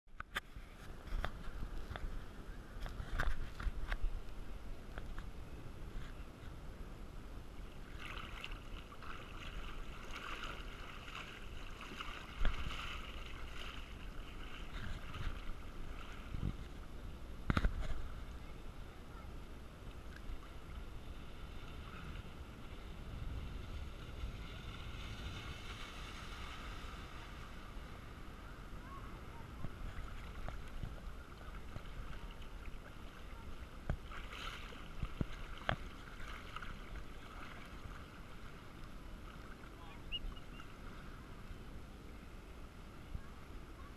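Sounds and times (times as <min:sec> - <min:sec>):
water lapping against camera housing: 0:07.9 - 0:16.8, 0:29.4 - 0:38.2.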